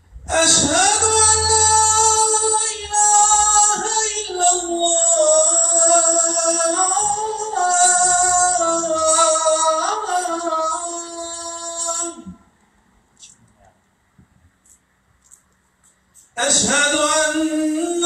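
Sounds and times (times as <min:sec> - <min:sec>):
man chanting call to prayer: 0:00.2 - 0:12.4, 0:16.4 - 0:18.0.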